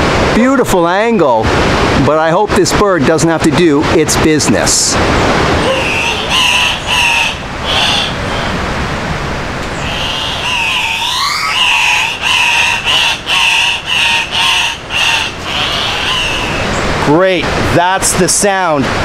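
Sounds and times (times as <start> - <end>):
river rushing: 3.9 - 19.0
birds calling: 5.3 - 17.2.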